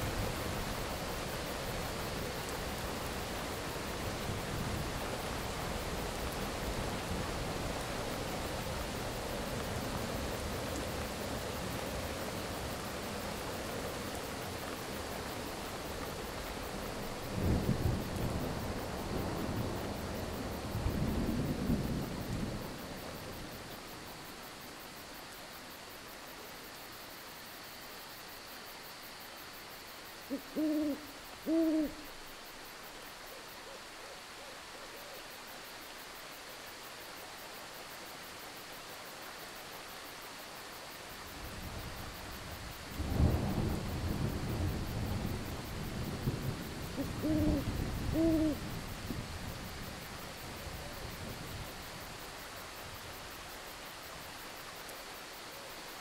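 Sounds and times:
rain hissing: 0:00.0 - 0:33.3, 0:35.3 - 0:56.0
owl hooting: 0:30.3 - 0:32.2, 0:47.0 - 0:48.6.

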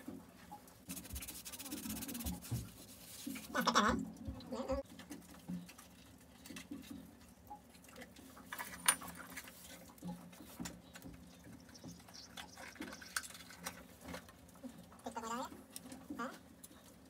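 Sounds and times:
clicks and rustles of small parts: 0:04.8 - 0:17.0.

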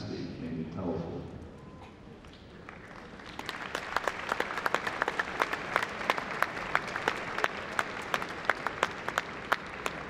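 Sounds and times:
audience applauding: 0:02.6 - 0:10.0.

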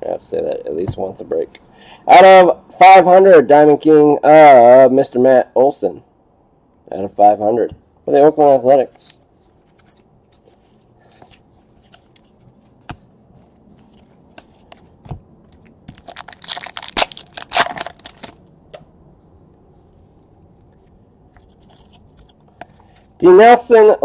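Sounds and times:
wrapper ripping and crinkling: 0:15.9 - 0:18.4.

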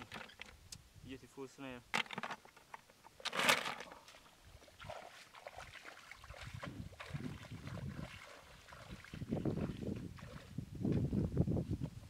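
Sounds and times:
shallow water sloshing and splashing: 0:03.2 - 0:10.6
footsteps squelching through mud: 0:03.4 - 0:10.6.

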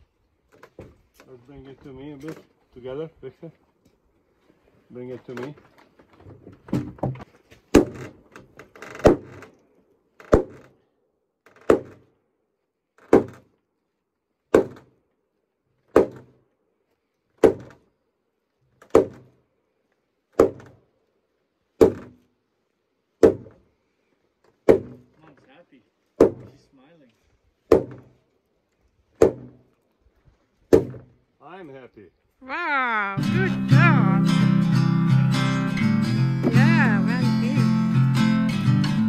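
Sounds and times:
wooden mallet striking timber: 0:06.7 - 0:08.0, 0:09.0 - 0:09.4, 0:10.3 - 0:10.6, 0:11.6 - 0:12.1, 0:13.0 - 0:13.5, 0:14.5 - 0:14.9, 0:15.9 - 0:16.3, 0:17.4 - 0:17.8, 0:18.9 - 0:19.3, 0:20.4 - 0:20.8, 0:21.8 - 0:22.2, 0:23.2 - 0:23.6, 0:24.6 - 0:25.1, 0:26.2 - 0:26.6, 0:27.7 - 0:28.2, 0:29.2 - 0:29.6, 0:30.7 - 0:31.1.

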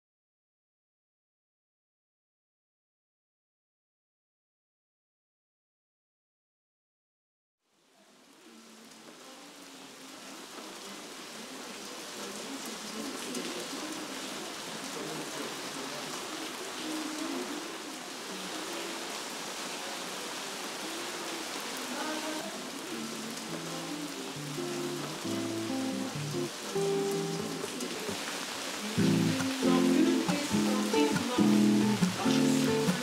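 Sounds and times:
steady rain falling: 0:07.7 - 0:33.0.

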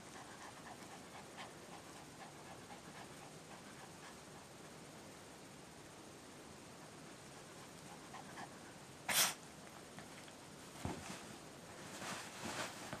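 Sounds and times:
dog sneezing: 0:09.1 - 0:09.4.

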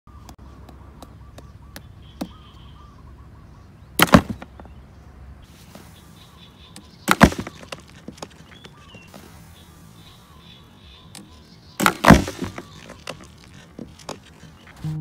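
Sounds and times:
cardboard box lid slamming shut: 0:11.8 - 0:12.8.

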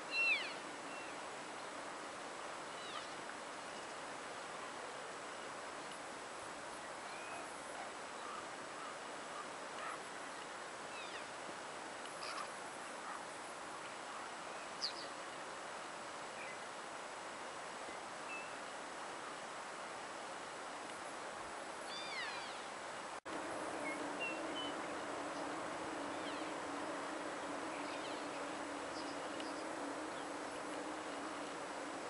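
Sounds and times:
elk calling with high mews: 0:00.1 - 0:00.6
steady low hum: 0:23.0 - 0:32.0.

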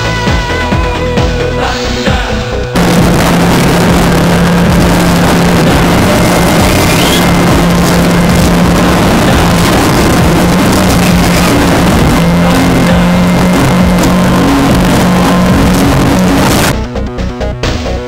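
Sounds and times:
boat engine humming: 0:00.0 - 0:16.9
rush of wind and water: 0:02.8 - 0:16.7.

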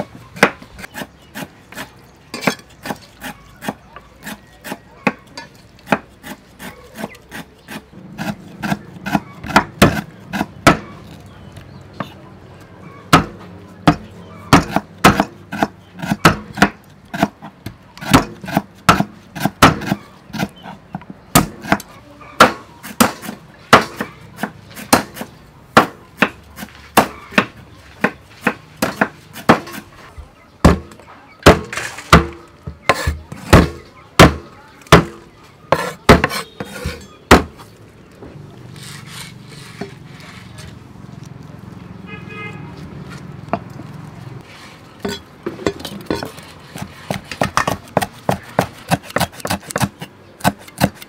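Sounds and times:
knife chopping on wooden block: 0:05.8 - 0:10.9, 0:13.1 - 0:17.4, 0:18.0 - 0:20.5, 0:21.3 - 0:29.9, 0:30.6 - 0:37.6, 0:46.2 - 0:51.0.

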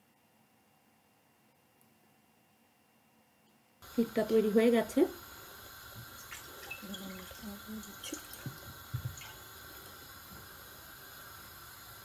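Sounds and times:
water pouring into a pan: 0:04.8 - 0:12.0.

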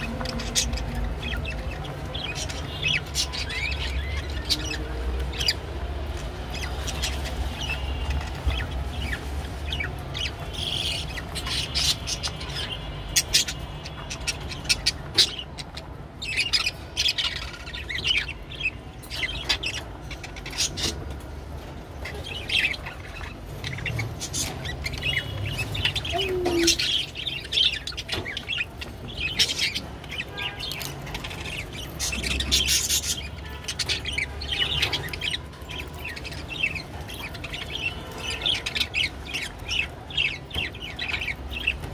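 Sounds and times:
budgerigars chattering: 0:22.0 - 0:41.9.

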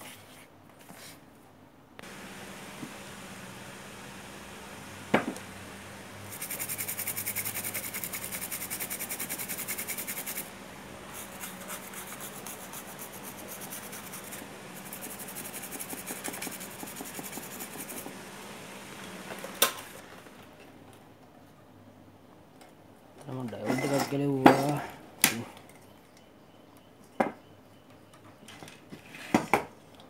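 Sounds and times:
scrubbing circuit board: 0:06.3 - 0:10.5.

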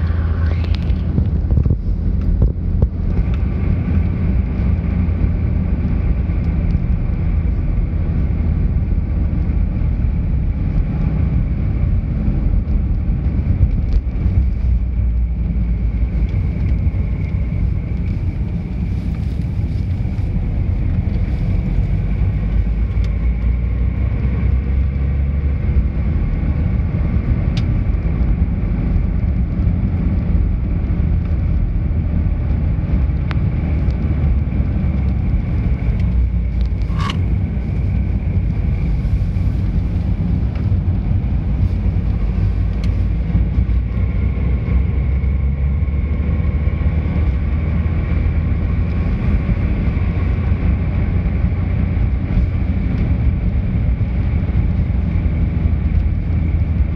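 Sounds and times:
faint steady whine: 0:00.0 - 0:24.7
car engine and tyres rumble: 0:00.0 - 0:56.9.

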